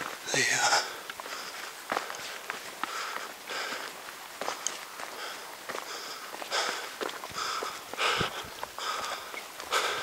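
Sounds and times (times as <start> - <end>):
footsteps on rocky dirt: 0.0 - 10.0
person breathing hard: 0.4 - 10.0.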